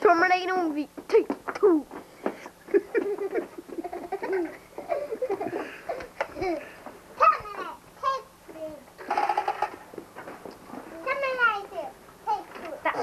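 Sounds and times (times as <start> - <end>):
children laughing and giggling: 2.4 - 7.7, 9.0 - 9.9.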